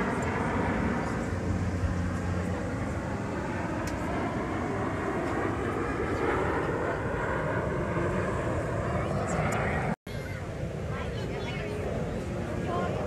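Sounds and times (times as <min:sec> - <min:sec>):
distant jet rushing overhead: 0:00.0 - 0:13.0.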